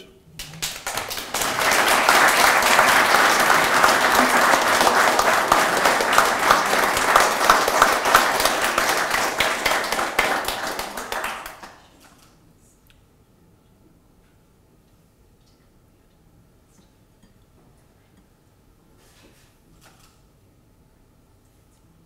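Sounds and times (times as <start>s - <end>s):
audience applauding: 0.4s - 11.9s.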